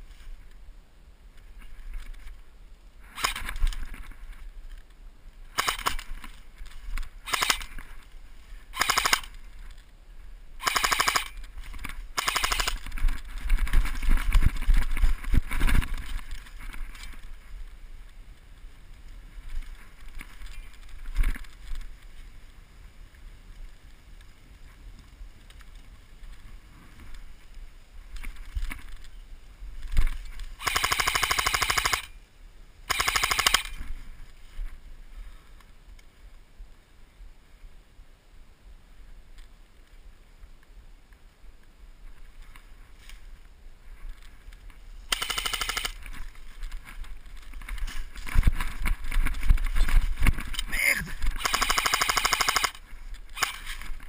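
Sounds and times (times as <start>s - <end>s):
rustling: 0.0s - 36.8s, 39.1s - 54.0s
airsoft rifle full-auto bursts: 5.6s - 6.1s, 7.2s - 7.8s, 8.7s - 9.4s, 10.6s - 11.4s, 12.2s - 12.9s, 30.6s - 32.2s, 32.9s - 33.8s, 45.1s - 46.0s, 51.4s - 52.8s, 53.4s - 53.7s.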